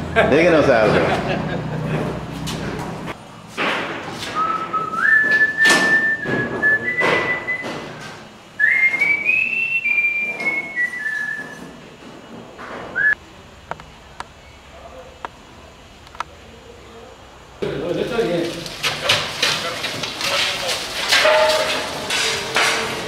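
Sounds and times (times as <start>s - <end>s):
person whistling a tune: 4.4s - 7.7s, 8.6s - 11.6s, 13.0s - 13.2s.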